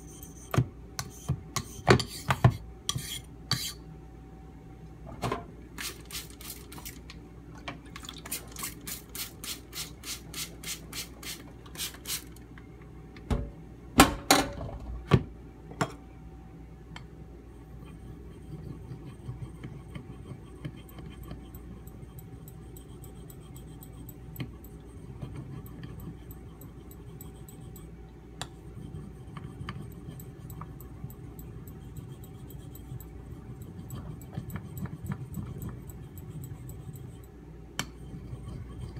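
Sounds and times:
knife on sharpening stone: 1.0s - 2.3s, 2.9s - 3.8s.

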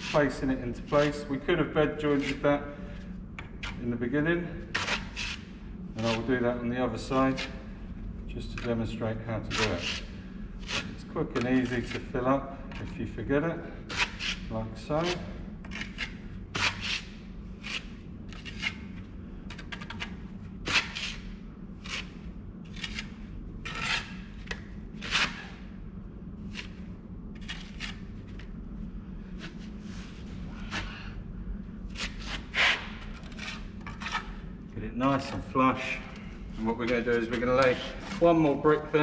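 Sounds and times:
trowel scraping mortar: 32.0s - 34.4s.

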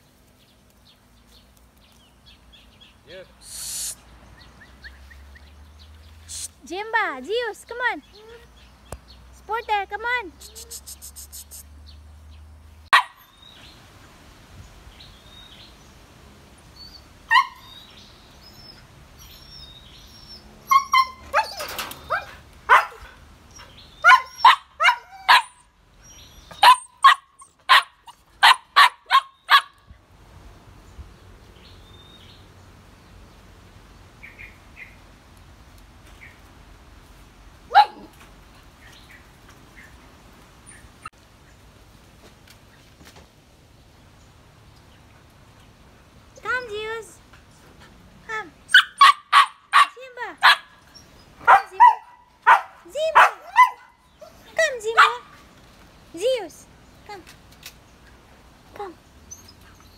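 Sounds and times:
puppies barking: 12.9s - 13.3s, 17.3s - 17.8s, 20.2s - 25.7s, 26.4s - 29.8s, 48.7s - 55.3s.

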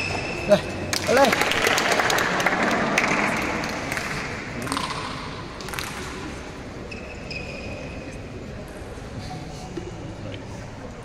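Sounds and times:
murmur of voices: 0.0s - 11.0s
table tennis ball bouncing: 2.5s - 6.3s.

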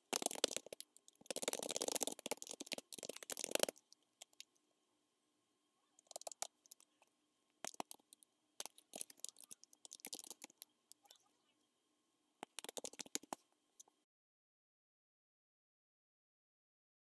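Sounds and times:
computer keyboard typing: 0.0s - 4.5s, 6.0s - 6.9s, 7.6s - 10.6s, 12.4s - 13.4s.

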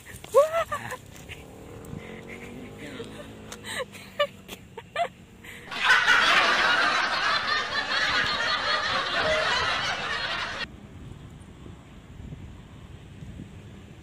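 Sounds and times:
group laughter: 2.3s - 10.7s.

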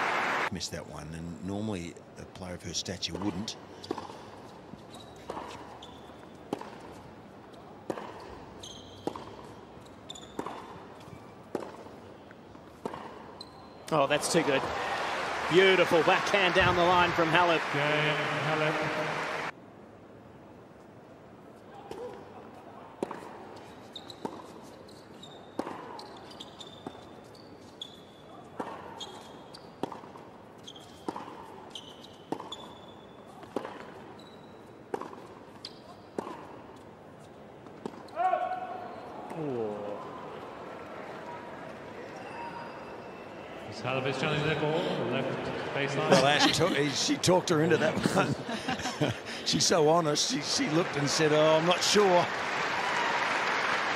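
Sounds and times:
shoes squeaking on court: 3.2s - 14.4s, 23.0s - 38.2s
tennis racquets hitting ball: 6.5s - 7.0s, 7.8s - 9.6s, 10.3s - 12.0s, 12.6s - 13.3s, 23.0s - 23.4s, 25.6s - 26.1s, 29.8s - 30.3s, 30.9s - 32.7s, 33.4s - 34.1s, 34.8s - 36.9s.

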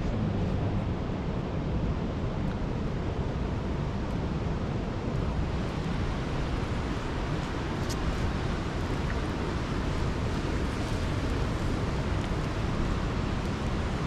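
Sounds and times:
river water rushing: 2.7s - 14.0s.

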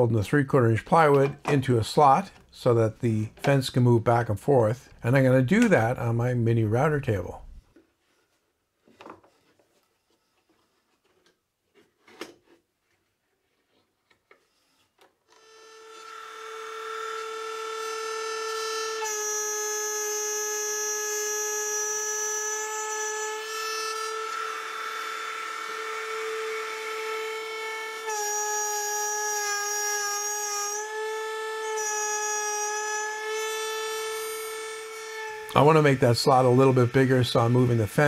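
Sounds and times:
router motor whining: 15.3s - 38.0s.

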